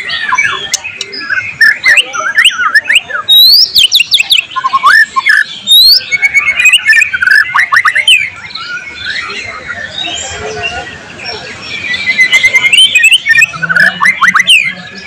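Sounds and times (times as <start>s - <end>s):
bird singing whistles and clicks: 0.0s - 8.2s, 12.2s - 14.7s.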